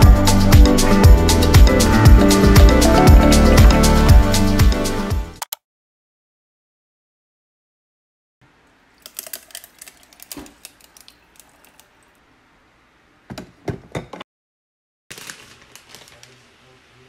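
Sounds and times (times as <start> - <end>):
coffee pouring: 8.9 - 12.2
ice cubes clicking in glass: 9.0 - 11.9
plastic bag crinkling: 9.0 - 12.0, 15.1 - 16.5.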